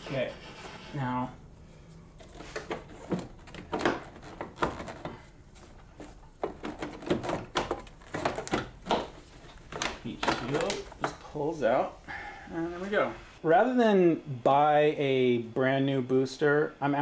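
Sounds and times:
plastic trim clicking and rubbing: 2.2s - 5.2s, 6.0s - 11.2s.

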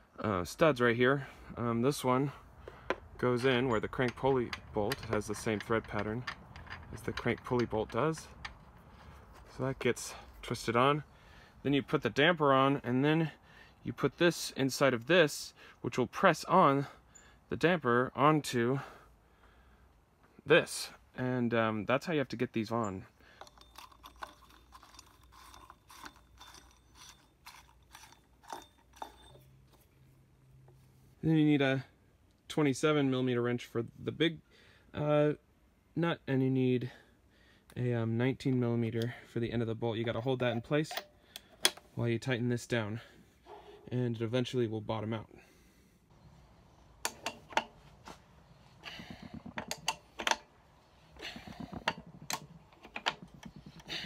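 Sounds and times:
metallic tool clicks: 40.1s - 41.8s, 47.0s - 47.8s.

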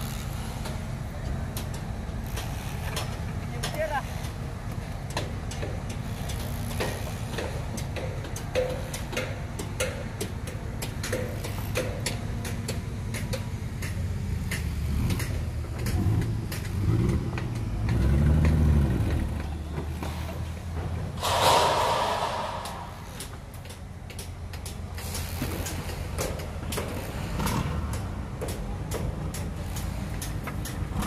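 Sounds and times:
air hiss burst: 21.2s - 23.5s.

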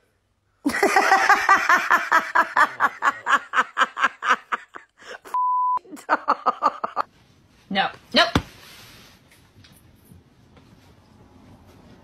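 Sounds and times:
person laughing hard: 0.7s - 7.1s
censor bleep: 5.4s - 5.8s.

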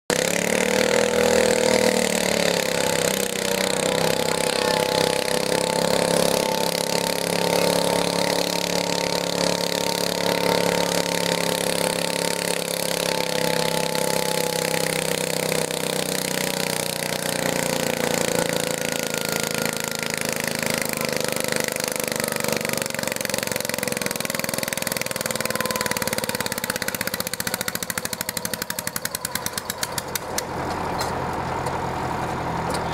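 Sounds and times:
tractor engine running hard: 0.1s - 32.9s.

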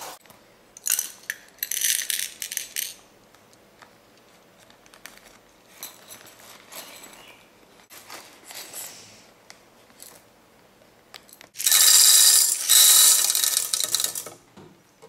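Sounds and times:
popcorn kernels rattling into container: 11.6s - 14.3s.

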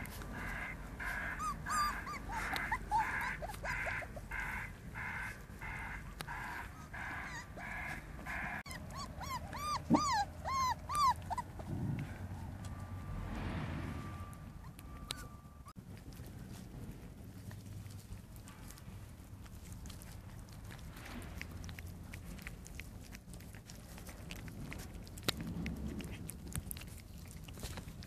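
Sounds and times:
puppies whimpering and yipping: 0.0s - 12.5s, 14.4s - 15.8s.

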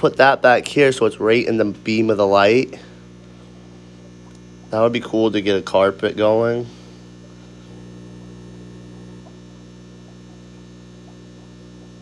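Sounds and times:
aquarium equipment electrical hum: 0.0s - 12.0s.

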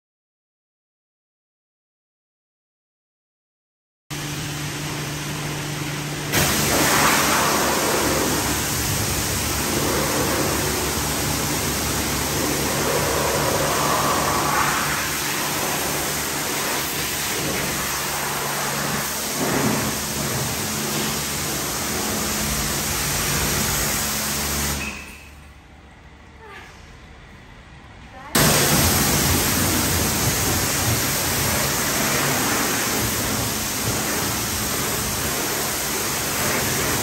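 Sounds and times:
low hum: 4.2s - 18.8s
pressure washer spraying car: 4.2s - 25.3s, 28.4s - 37.0s.

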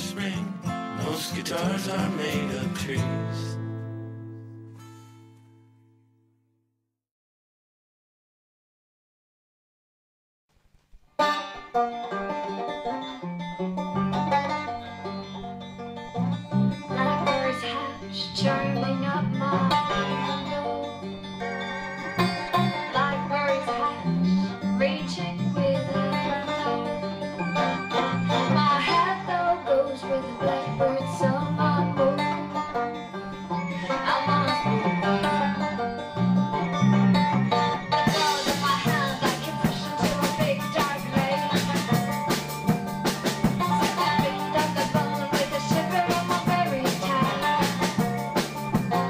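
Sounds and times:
plucked string instruments: 0.0s - 5.6s, 11.2s - 49.0s
steady bass line: 22.2s - 29.4s, 30.4s - 49.0s.

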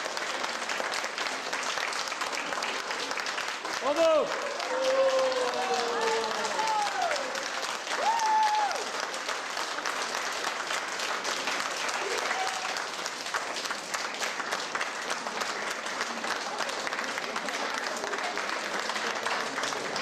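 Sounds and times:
audience applauding: 0.0s - 20.0s
person cheering: 3.8s - 7.3s, 8.0s - 8.8s, 12.1s - 12.8s.

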